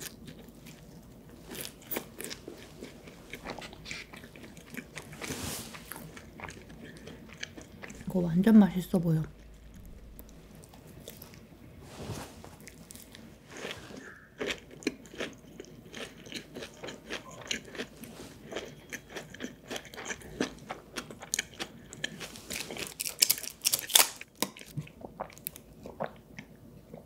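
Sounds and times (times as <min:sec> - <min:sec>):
chewing crunchy vegetables: 0:00.0 - 0:11.5, 0:12.6 - 0:27.0.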